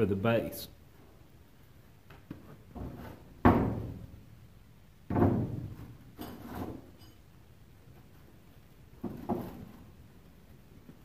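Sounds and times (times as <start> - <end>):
heavy metal knocks on wood: 3.4 - 4.1, 5.1 - 5.8.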